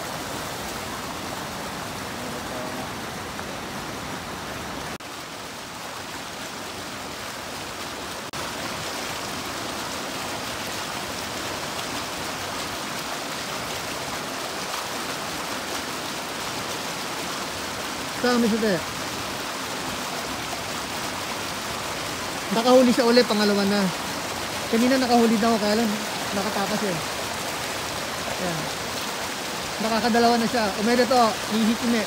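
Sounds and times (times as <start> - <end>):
mountain stream rushing: 0.0 - 32.0.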